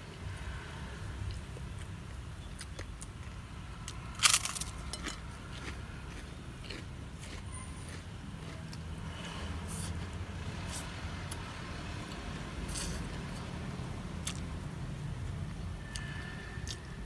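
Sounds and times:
person chewing: 0:01.2 - 0:08.8, 0:12.0 - 0:13.5, 0:14.2 - 0:14.5
crisp crunch of raw greens: 0:04.2 - 0:07.4.

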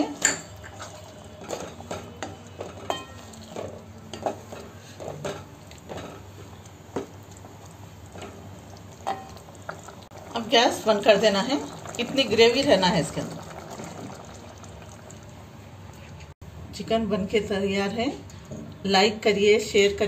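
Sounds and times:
wooden spatula stirring in pot: 0:00.0 - 0:14.8
faint simmer: 0:00.0 - 0:20.0.

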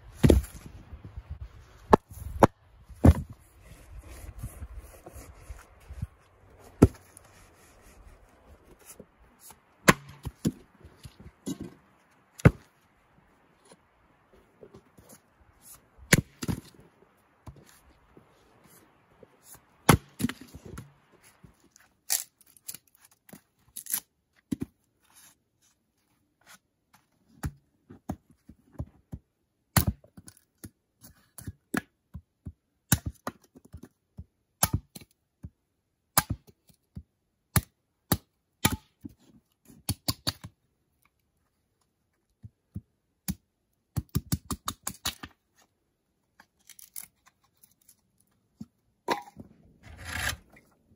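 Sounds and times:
axe splitting firewood: 0:00.1 - 0:05.3, 0:06.7 - 0:08.0, 0:08.9 - 0:12.7, 0:16.0 - 0:16.8, 0:19.8 - 0:21.0, 0:49.1 - 0:50.6.

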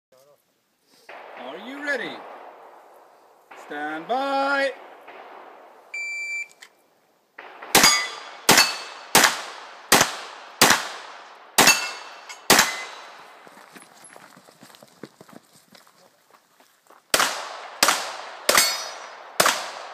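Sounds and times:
pistol shots with echo: 0:01.1 - 0:06.4, 0:07.4 - 0:13.4, 0:17.1 - 0:19.9.

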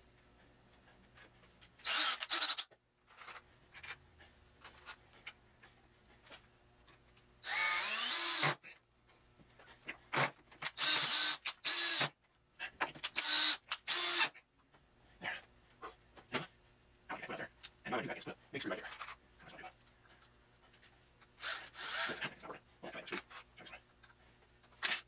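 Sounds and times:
cordless drill drilling into wood: 0:01.8 - 0:02.7, 0:07.4 - 0:08.6, 0:10.1 - 0:12.1, 0:13.2 - 0:14.3, 0:21.4 - 0:22.2.

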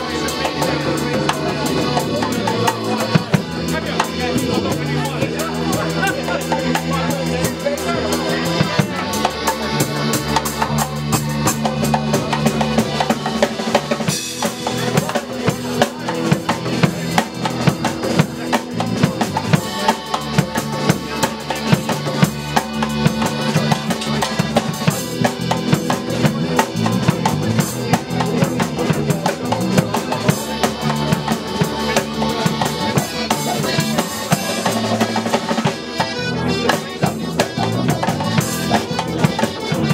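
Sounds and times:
drum kit beat: 0:00.0 - 0:39.9
folk band playing: 0:00.0 - 0:39.9
tuba bass line: 0:00.0 - 0:39.9.

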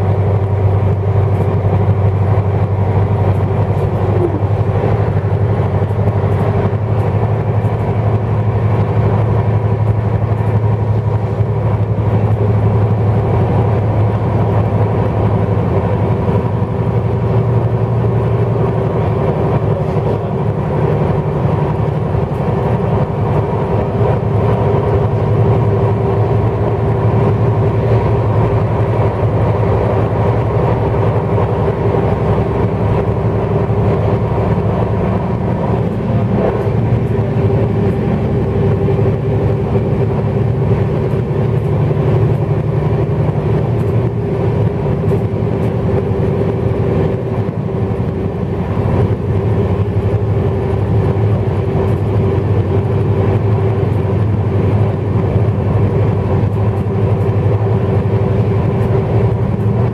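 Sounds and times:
train wheels rumbling on rail: 0:00.0 - 0:59.9.

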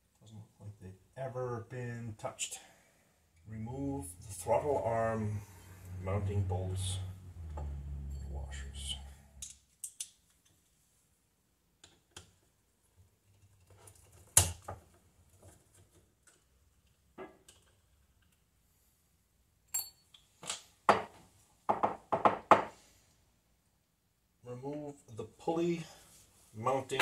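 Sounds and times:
ringing metallic clinks: 0:19.7 - 0:20.1.

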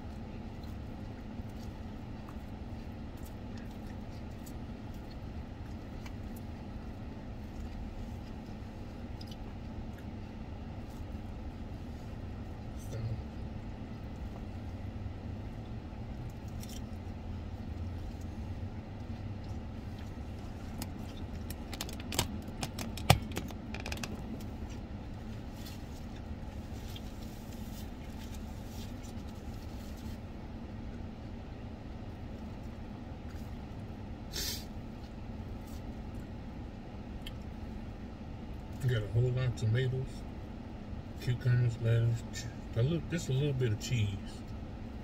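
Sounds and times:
low hum inside car: 0:00.0 - 0:45.0
person chewing: 0:00.1 - 0:11.4, 0:16.2 - 0:22.3.

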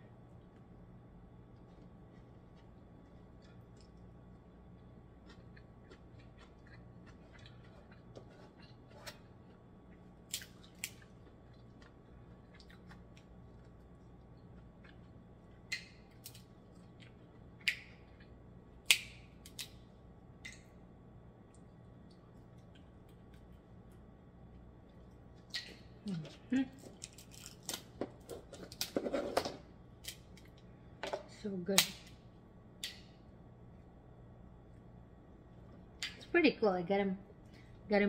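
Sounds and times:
crab shells cracking: 0:10.3 - 0:11.1, 0:15.7 - 0:18.0, 0:26.8 - 0:29.0.

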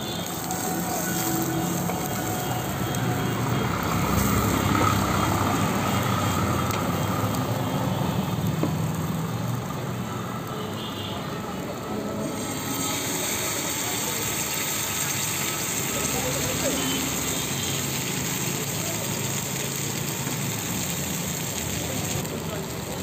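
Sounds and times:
vegetables stir-frying in a pan: 0:00.0 - 0:23.0
wooden spatula in a pan: 0:00.2 - 0:03.1.

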